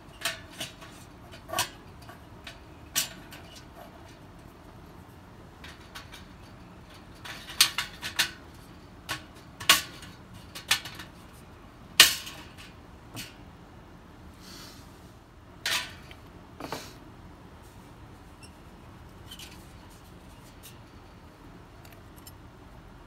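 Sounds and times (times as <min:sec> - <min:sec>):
metal strips clinking and scraping: 0:00.1 - 0:13.4, 0:15.6 - 0:16.2, 0:18.4 - 0:21.2.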